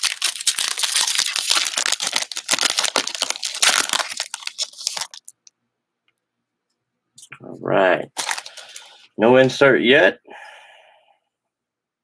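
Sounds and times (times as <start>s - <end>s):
foil wrapper tearing and crinkling: 0.0s - 5.4s, 8.2s - 9.0s.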